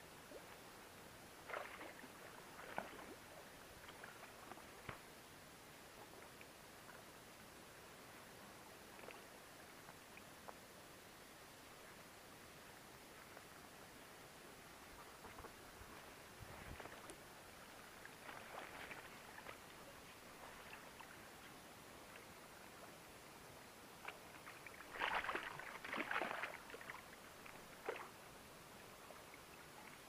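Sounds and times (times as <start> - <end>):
water sloshing and splashing: 1.5 - 5.0, 15.0 - 21.5, 24.0 - 28.2.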